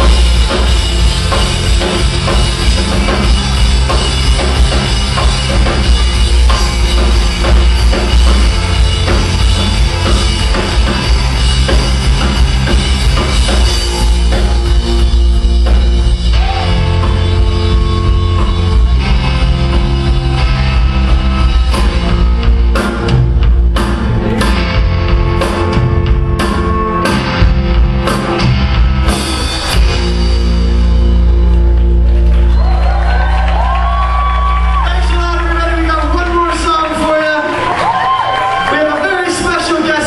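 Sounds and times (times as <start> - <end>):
rock band playing live: 0.0 - 40.0.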